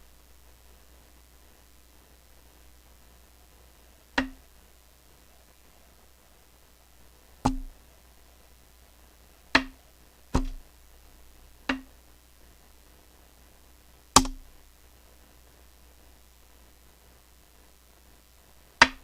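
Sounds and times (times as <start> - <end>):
sharp punch knocks: 7.4 - 7.7, 10.4 - 10.6, 14.2 - 14.4.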